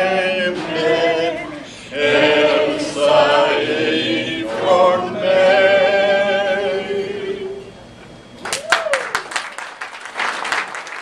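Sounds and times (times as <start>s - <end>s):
group singing a cappella: 0.0s - 7.8s.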